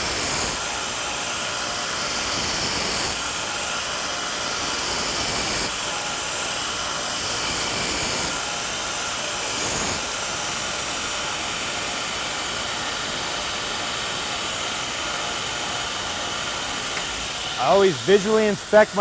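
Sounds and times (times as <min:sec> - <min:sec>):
power grinder grinding steel: 0:04.4 - 0:19.0.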